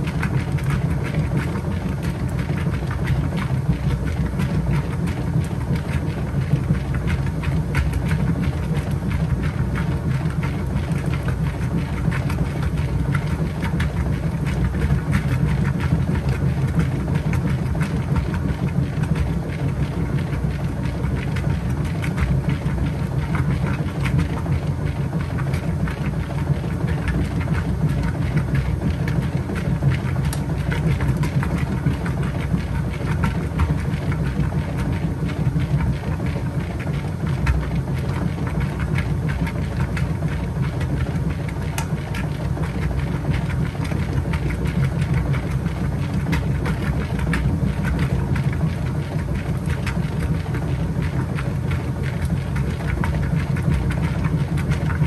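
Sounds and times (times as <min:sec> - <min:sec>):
washing machine motor humming: 0:00.0 - 0:55.0
small rapid clicks: 0:00.1 - 0:55.0.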